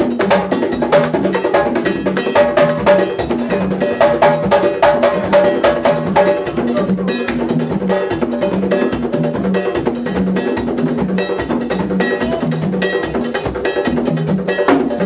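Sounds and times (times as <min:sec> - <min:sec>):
hand drums: 0:00.0 - 0:15.0.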